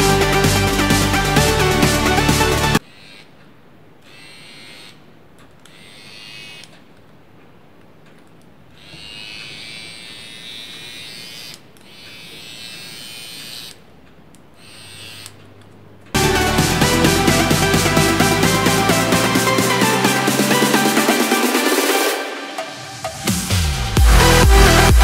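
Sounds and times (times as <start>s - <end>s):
electric hair trimmer buzzing: 8.8s - 13.7s.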